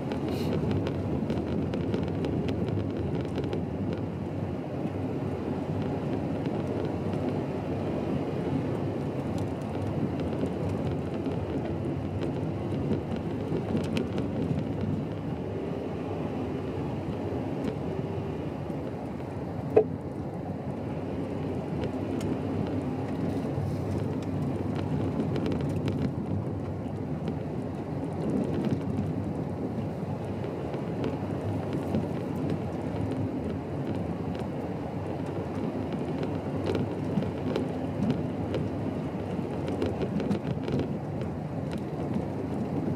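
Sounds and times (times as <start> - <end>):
car engine: 0.0 - 42.9
tyres rumbling on gravel: 9.0 - 15.6, 20.9 - 42.9.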